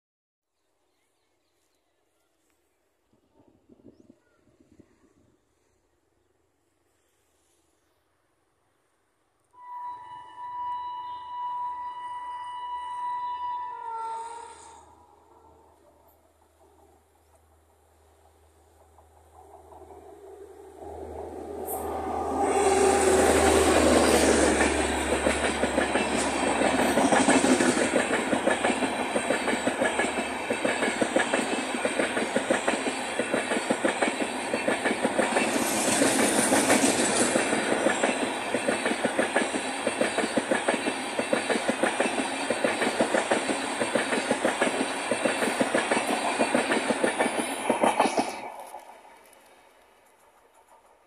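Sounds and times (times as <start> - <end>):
locomotive humming: 9.6 - 51.0
train wheels clattering over rail joints: 23.4 - 49.2.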